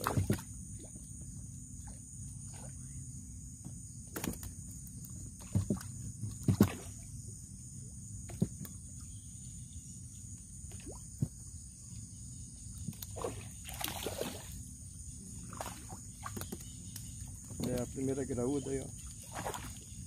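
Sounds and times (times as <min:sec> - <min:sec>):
rough splashing: 0:00.0 - 0:00.9, 0:05.4 - 0:07.1, 0:13.0 - 0:14.6, 0:15.4 - 0:16.5, 0:19.1 - 0:19.8.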